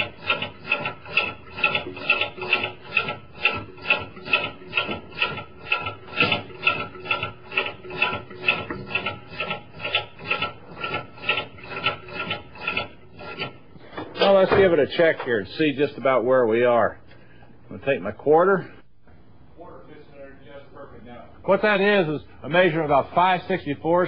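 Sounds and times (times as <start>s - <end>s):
wrench rasping: 0.0s - 14.5s.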